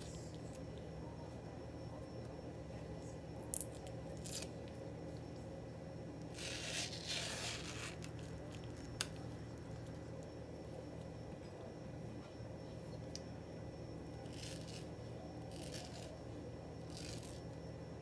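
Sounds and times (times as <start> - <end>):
knife scraping peel: 6.3 - 8.4, 14.3 - 14.9, 15.5 - 16.2, 16.9 - 17.4.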